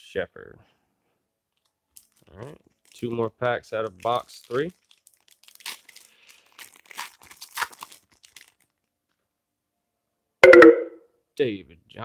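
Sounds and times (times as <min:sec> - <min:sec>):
wrapper tearing and crinkling: 0:02.0 - 0:03.1, 0:03.8 - 0:08.9.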